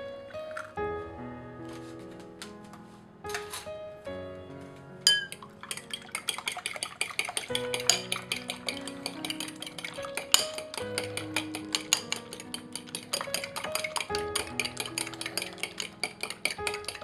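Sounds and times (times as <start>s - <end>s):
utensil clicking against ceramic bowl: 5.3s - 17.0s.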